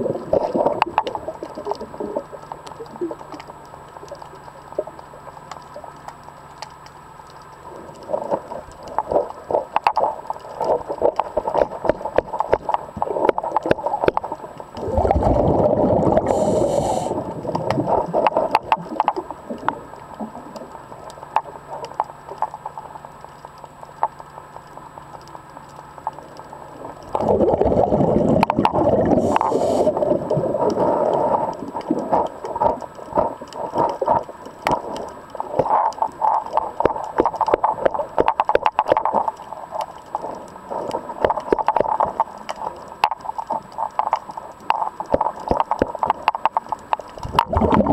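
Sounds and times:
small sharp clicks and crackles: 0.1s - 15.4s, 16.0s - 47.9s
exhaled breath bubbling underwater: 14.7s - 20.8s, 27.0s - 37.8s, 47.2s - 47.9s.

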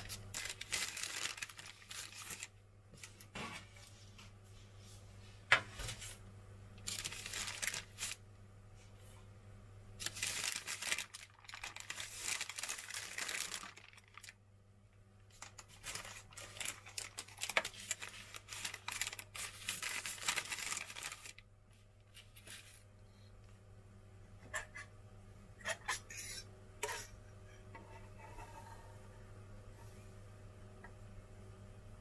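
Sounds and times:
baking paper crinkling: 0.0s - 4.3s, 6.8s - 8.2s, 10.0s - 14.4s, 15.3s - 22.9s
low steady hum: 0.0s - 32.0s.

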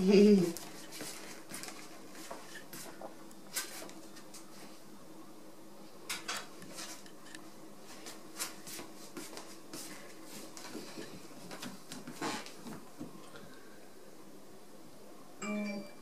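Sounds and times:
cat rustling on wooden floor: 0.4s - 4.8s, 7.8s - 13.2s.

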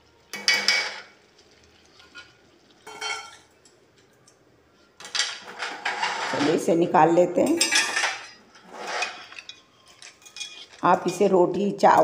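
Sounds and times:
spatula scraping metal pan: 5.7s - 6.6s, 8.5s - 10.8s.

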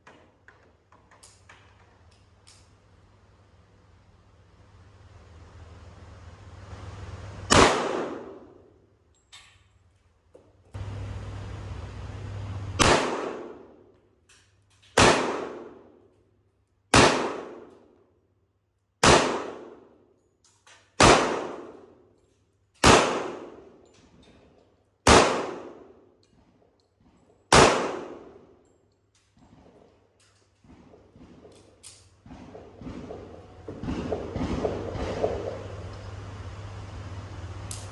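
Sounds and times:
pistol shots with ringing tail: 7.5s - 8.7s, 12.8s - 13.8s, 14.9s - 16.0s, 16.9s - 17.7s, 19.0s - 19.9s, 20.9s - 22.0s, 22.8s - 23.8s, 25.0s - 26.1s, 27.5s - 28.6s.

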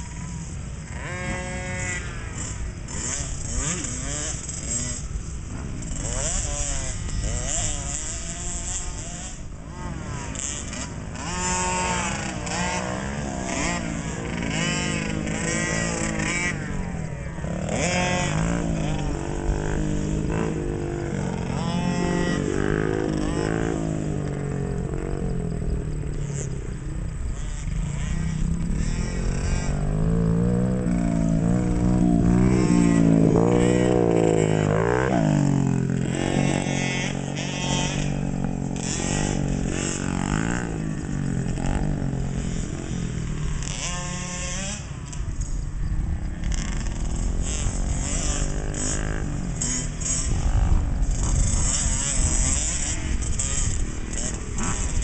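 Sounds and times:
dirt bike engines revving: 0.0s - 55.0s.

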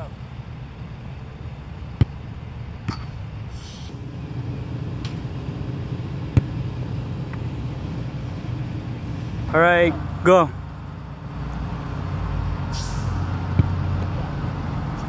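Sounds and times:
low background rumble: 0.0s - 15.0s
soccer ball kick thud: 2.0s - 2.2s, 6.3s - 6.6s, 13.5s - 13.8s.

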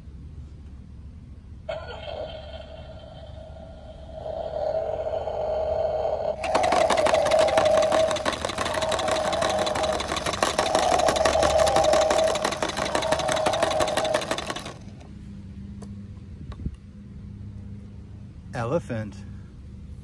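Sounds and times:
toy truck buzzing rattle: 6.3s - 15.1s.

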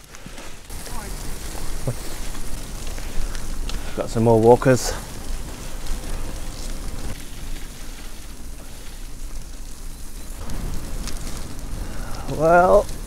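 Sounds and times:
bike tyres on dirt trail: 0.0s - 13.0s.

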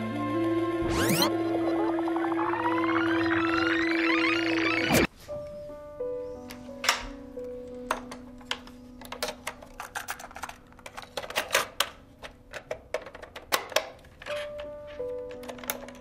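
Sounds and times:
background music low note: 0.0s - 9.0s.

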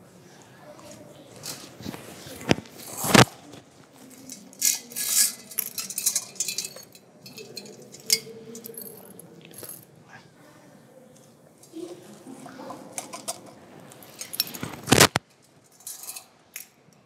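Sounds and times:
small hard objects clinking: 4.2s - 9.8s.

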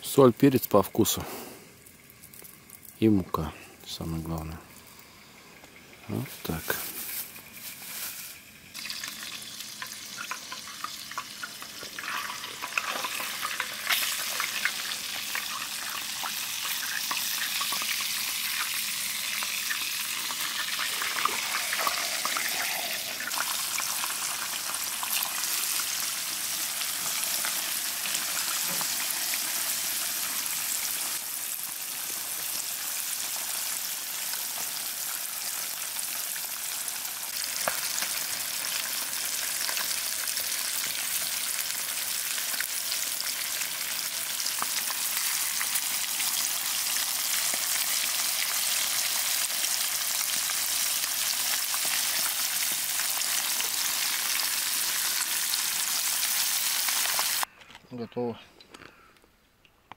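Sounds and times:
fish sizzling in hot oil: 1.8s - 3.0s, 4.7s - 57.5s.

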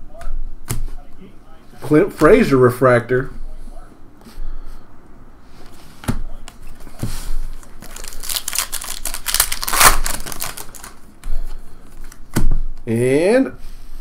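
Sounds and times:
cards being shuffled: 6.5s - 12.5s.

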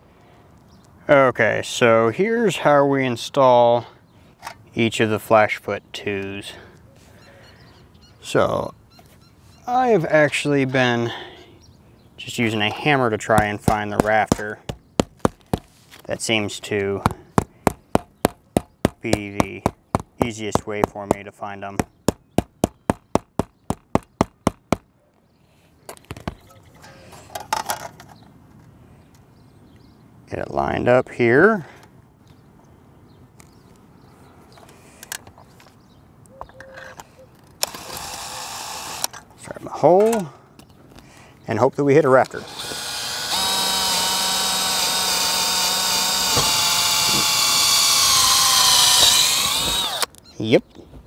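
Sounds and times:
hammer tapping on shingles: 13.3s - 15.7s, 17.0s - 21.2s, 21.8s - 24.8s
cordless drill boring into roof: 37.6s - 39.2s, 42.4s - 50.1s.

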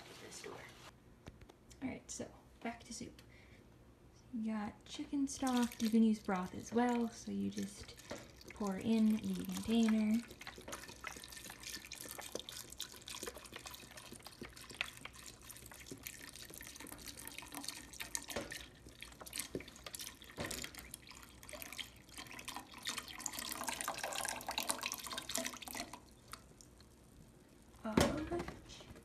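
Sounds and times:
liquid pouring into a pot: 5.3s - 27.8s.

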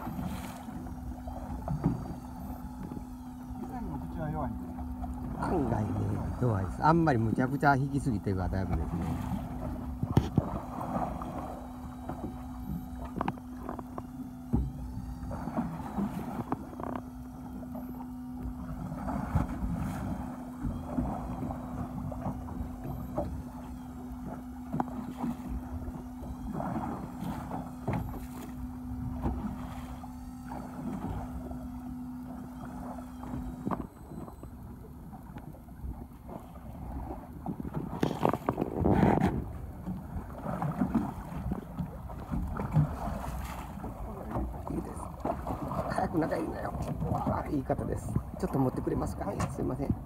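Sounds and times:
low hum: 0.0s - 50.0s
water splashing against boat hull: 0.0s - 50.0s
knocks on boat: 8.6s - 11.1s, 12.0s - 17.1s, 26.5s - 29.7s.

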